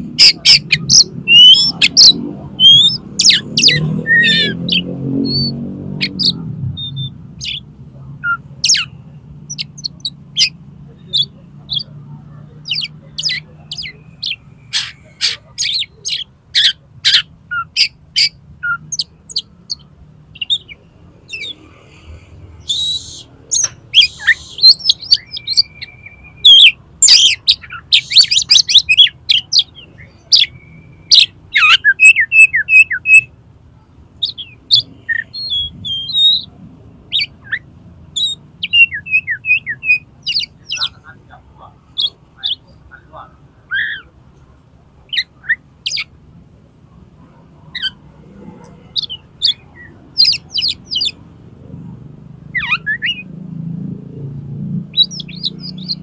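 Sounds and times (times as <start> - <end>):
bird singing chips and trills: 0.0 - 12.0, 12.6 - 21.7, 22.6 - 33.3, 34.2 - 36.5, 37.1 - 41.0, 45.1 - 46.1, 48.9 - 51.2, 52.6 - 53.3, 54.9 - 56.0.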